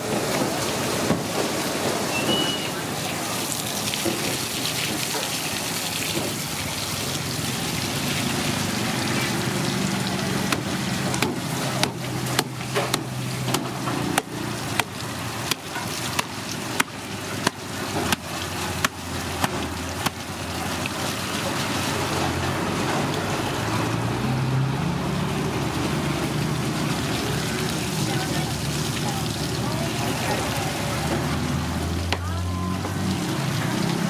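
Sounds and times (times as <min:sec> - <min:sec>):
hose water splashing: 0:00.0 - 0:34.0
cleaver chopping fish head: 0:10.4 - 0:20.4.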